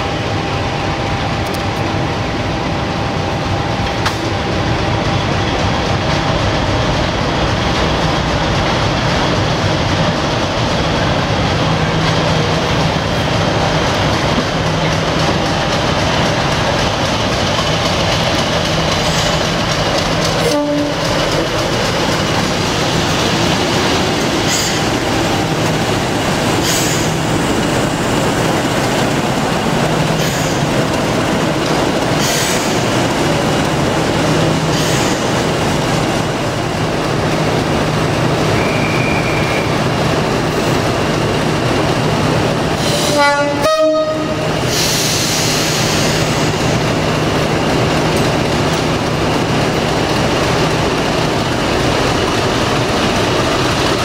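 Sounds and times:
diesel locomotive engines droning: 0.0s - 54.0s
locomotive horn blast: 20.4s - 21.1s, 42.9s - 44.5s.

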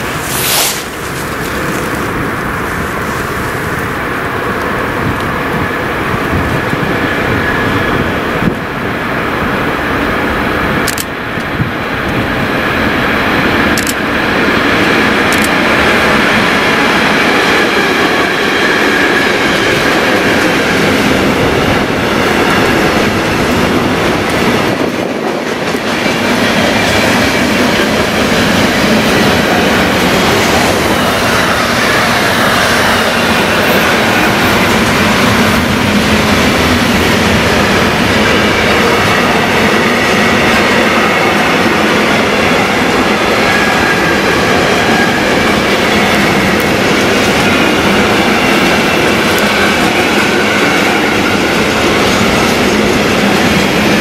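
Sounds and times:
sharp clicks: 10.8s - 11.1s, 13.8s - 14.0s, 15.3s - 15.6s
train wheels clattering over rails: 13.6s - 54.0s.

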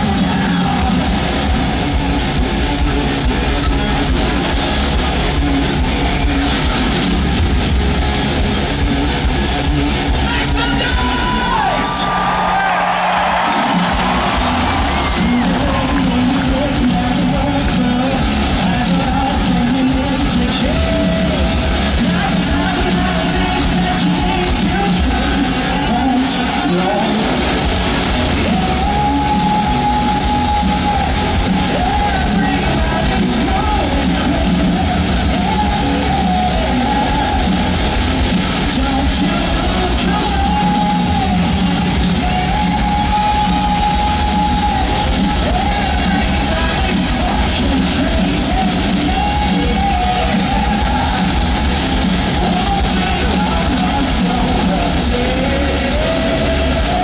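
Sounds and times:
drums: 0.0s - 57.0s
electric guitars: 0.0s - 57.0s
hard rock band playing live: 0.0s - 57.0s
person singing: 14.5s - 27.4s, 38.6s - 57.0s.

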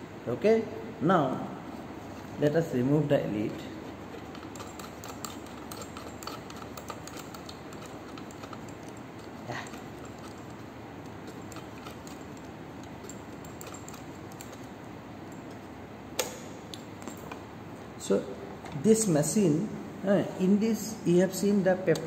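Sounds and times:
steady background noise: 0.0s - 22.0s
cable connector clicks and rattles: 4.1s - 14.7s.

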